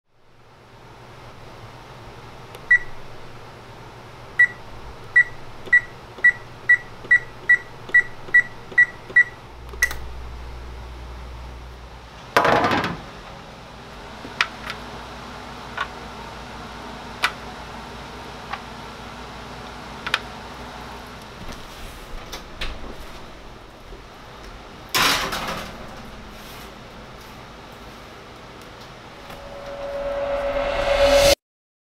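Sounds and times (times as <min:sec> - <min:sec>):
oven control panel beeps: 0:02.7 - 0:03.0, 0:04.4 - 0:04.6, 0:05.2 - 0:10.0.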